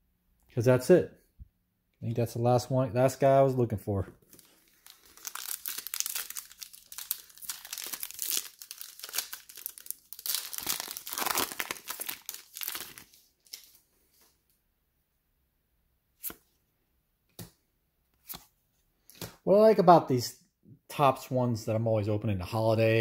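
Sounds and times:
foil wrapper tearing and crinkling: 4.3s - 13.7s.

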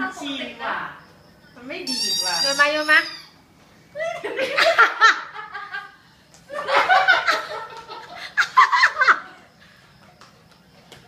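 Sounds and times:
people laughing: 4.0s - 9.6s.

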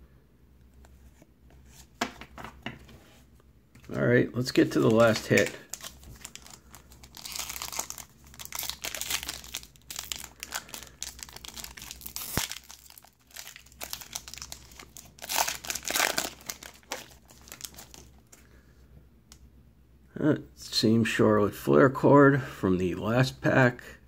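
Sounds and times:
foil wrapper crinkling: 4.5s - 18.4s.

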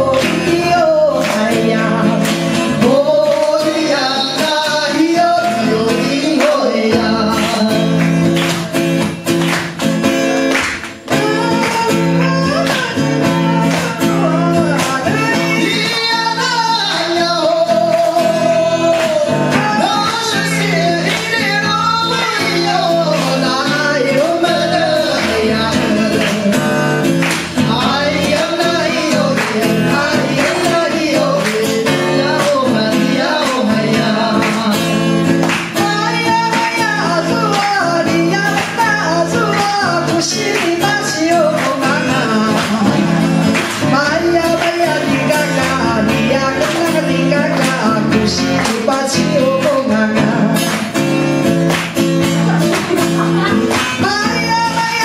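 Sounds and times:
acoustic guitar: 0.0s - 55.0s
woman singing into microphone: 11.1s - 35.2s, 35.8s - 43.2s, 52.4s - 55.0s.

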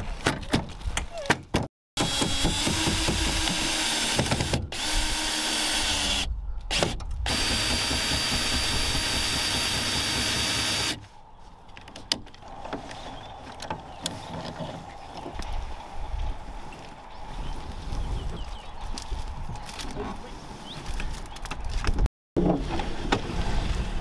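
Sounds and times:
cordless drill whining through metal: 2.0s - 11.0s.

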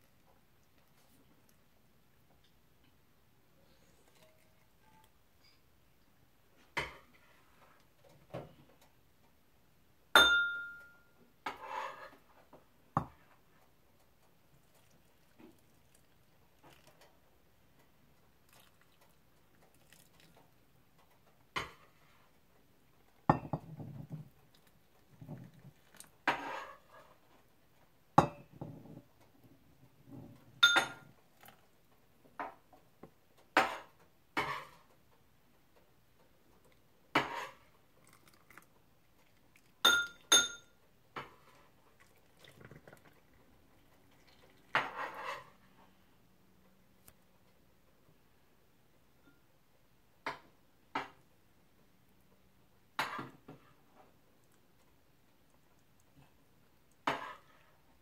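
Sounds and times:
metal ladle clinking on jars: 39.8s - 40.6s
liquid being ladled: 41.2s - 45.6s.

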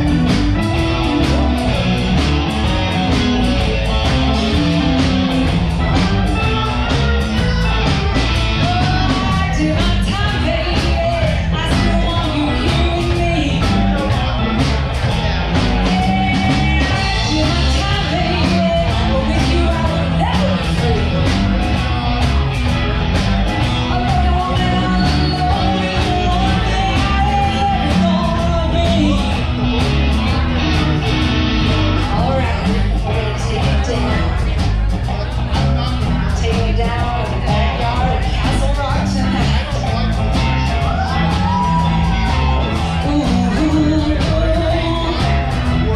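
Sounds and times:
blues band playing: 0.0s - 45.9s
woman singing: 5.8s - 14.0s, 15.8s - 21.2s, 23.8s - 29.3s, 36.4s - 39.6s, 43.0s - 45.5s.

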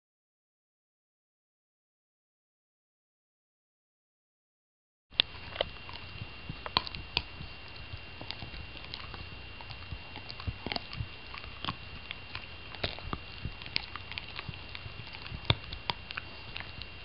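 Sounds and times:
dog gnawing on bone: 5.2s - 17.0s.

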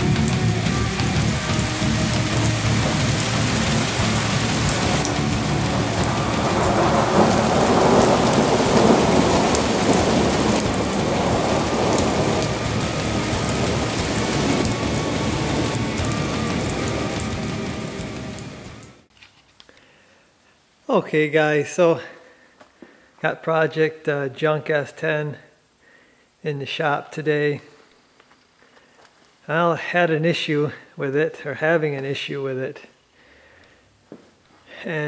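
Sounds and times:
steady rushing rain: 0.0s - 19.1s
rolling thunder: 1.1s - 19.0s.

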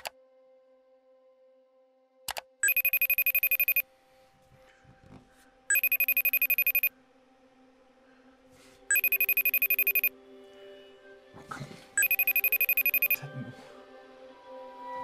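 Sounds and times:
electronic call ringtone trill: 2.6s - 3.8s, 5.7s - 6.9s, 8.9s - 10.1s, 12.0s - 13.2s.

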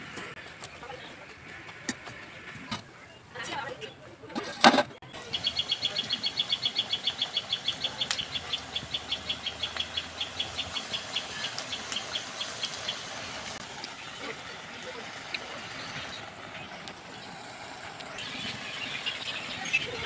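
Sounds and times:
fritters frying in hot oil: 5.2s - 20.0s.

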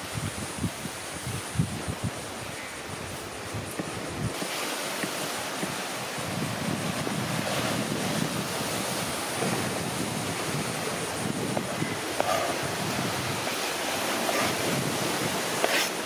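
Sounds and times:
sea surf washing: 0.0s - 16.0s
wind buffeting microphone: 0.0s - 16.0s.

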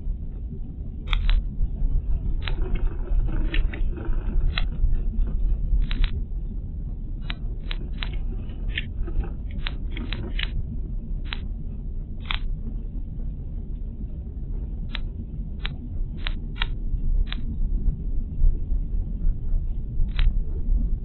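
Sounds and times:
sharp clicks and rattles: 1.1s - 1.5s, 2.4s - 4.9s, 5.8s - 6.2s, 7.2s - 10.6s, 11.2s - 11.4s, 14.9s - 17.5s, 20.1s - 20.4s.

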